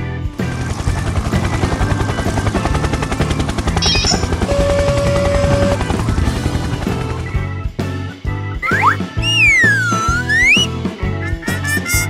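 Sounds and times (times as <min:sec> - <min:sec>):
cartoon helicopter rotor chop: 0:00.3 - 0:07.4, 0:08.6 - 0:12.0
children's background music: 0:05.4 - 0:12.0.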